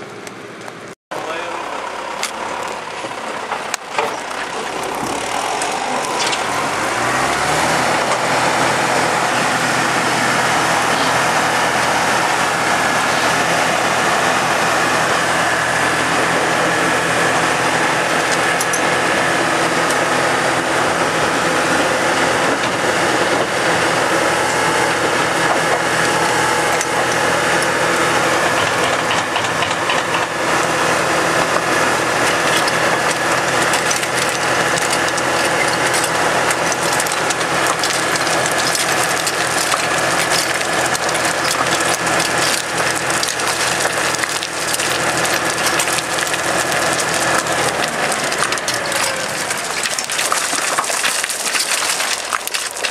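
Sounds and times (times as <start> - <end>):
diesel engine running: 0.0 - 52.9
stones clattering from bucket: 32.2 - 52.9.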